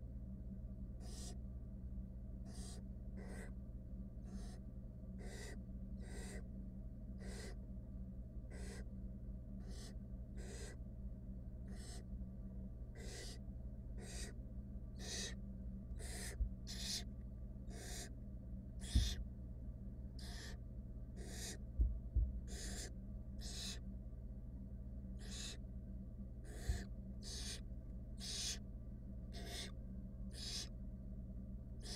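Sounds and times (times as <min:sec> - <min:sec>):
low electrical hum: 0:00.0 - 0:31.9
owl chicks hissing: 0:01.0 - 0:01.4, 0:02.4 - 0:03.6, 0:04.2 - 0:04.6, 0:05.2 - 0:06.5, 0:07.2 - 0:07.6, 0:08.5 - 0:08.9, 0:09.6 - 0:10.8, 0:11.6 - 0:12.1, 0:13.0 - 0:13.4, 0:14.0 - 0:14.4, 0:15.0 - 0:15.4, 0:16.0 - 0:17.1, 0:17.7 - 0:18.1, 0:18.8 - 0:19.2, 0:20.2 - 0:20.6, 0:21.2 - 0:21.6, 0:22.4 - 0:23.8, 0:25.2 - 0:25.6, 0:26.4 - 0:27.6, 0:28.2 - 0:28.6, 0:29.3 - 0:30.7
low thumps: 0:21.7 - 0:22.5.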